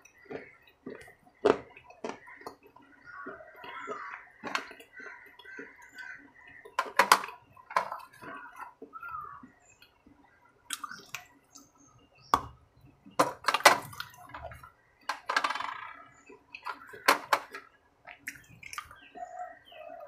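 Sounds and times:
wet chewing: 0.0 - 11.8, 17.6 - 19.6
lip smacks: 10.7 - 11.7
mouth clicks: 10.7 - 11.7, 18.1 - 19.1.

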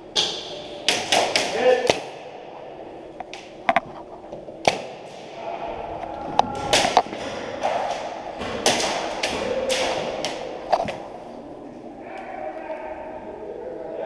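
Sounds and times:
sharp cracks and knocks: 0.1 - 2.2, 4.6 - 5.3, 6.4 - 11.0.

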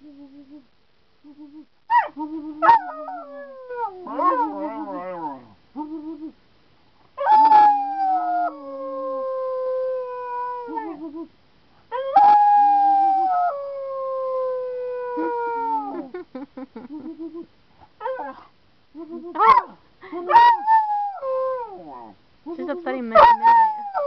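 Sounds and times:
dog howling: 2.6 - 5.5
man howling: 2.6 - 6.3, 7.2 - 11.3.

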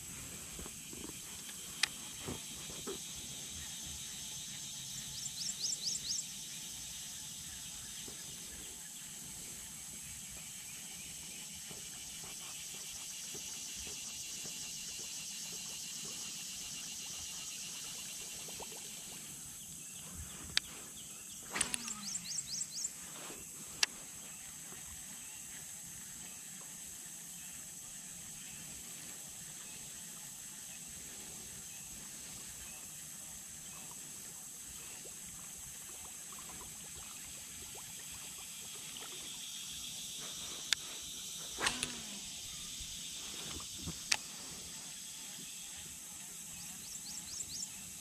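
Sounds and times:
sharp clicks: 21.5 - 22.1, 41.6 - 42.2
high-pitched insect-like drone: 38.4 - 48.0.

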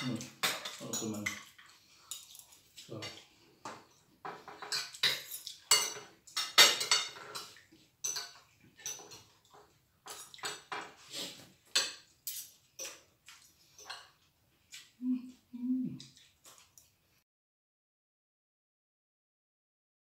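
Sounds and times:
cutlery clinking on plates: 0.0 - 14.9.

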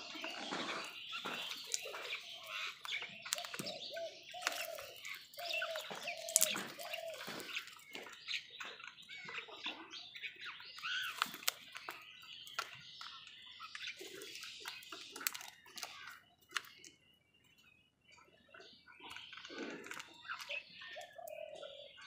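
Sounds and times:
beaks pecking plastic bowl: 0.0 - 9.2, 10.2 - 17.1, 19.0 - 21.5
crows cawing: 1.3 - 7.6.

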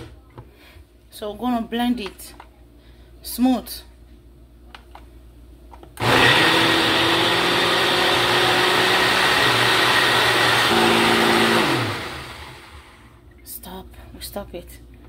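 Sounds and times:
blender motor running: 6.0 - 13.2.

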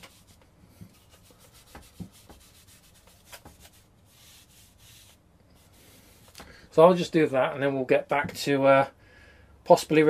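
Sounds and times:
wet wipe rubbing on glass: 0.0 - 6.3.

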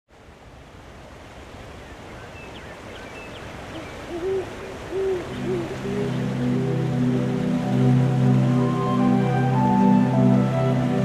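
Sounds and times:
night ambience hiss: 0.1 - 11.0
owl hooting: 3.8 - 6.5
soft sustained music chord: 5.2 - 11.0.

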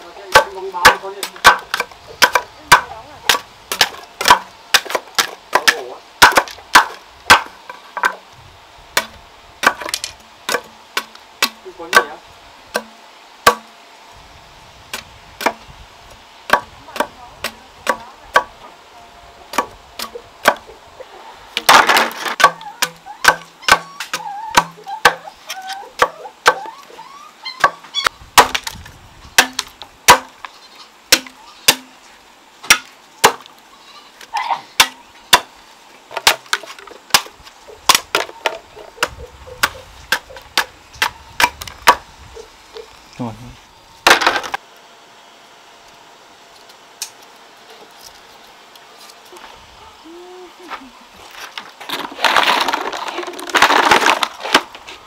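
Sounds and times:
chopping strikes on wood: 0.3 - 8.2, 9.0 - 13.7, 14.9 - 15.6, 16.5 - 18.5, 19.5 - 20.6, 21.6 - 25.2, 26.0 - 26.7, 28.4 - 28.8, 29.4 - 30.3, 31.1 - 31.9, 32.6 - 33.5, 34.8 - 35.5, 36.2 - 37.3, 37.9 - 42.0.

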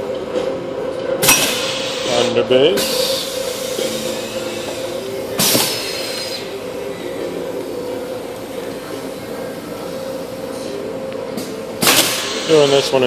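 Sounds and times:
machine hum with held tone: 0.0 - 12.7
pneumatic air hiss: 1.2 - 6.6.

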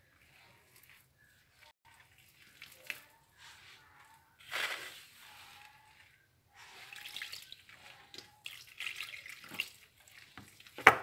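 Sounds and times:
hands kneading dough: 0.0 - 8.4
water splashing into a bowl: 6.8 - 10.8.

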